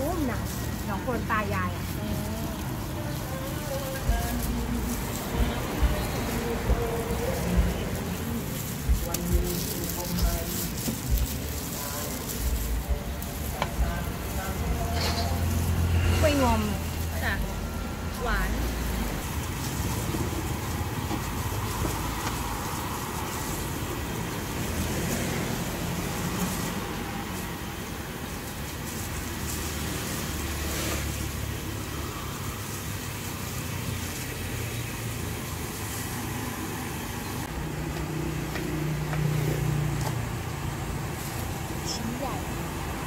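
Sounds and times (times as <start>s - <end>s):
engine humming: 0.0s - 43.0s
road traffic engine rumble: 0.0s - 43.0s.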